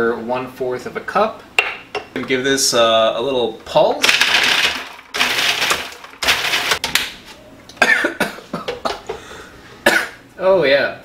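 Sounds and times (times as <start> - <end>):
food processor pulsing: 4.0 - 6.8.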